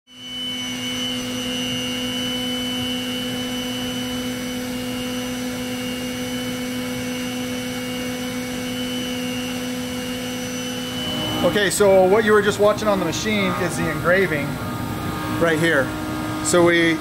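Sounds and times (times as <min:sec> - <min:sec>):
milling spindle whine: 0:00.1 - 0:17.0.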